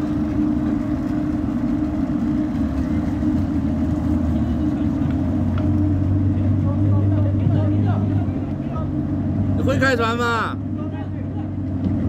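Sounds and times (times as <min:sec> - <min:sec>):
outboard motor humming: 0:00.0 - 0:12.0.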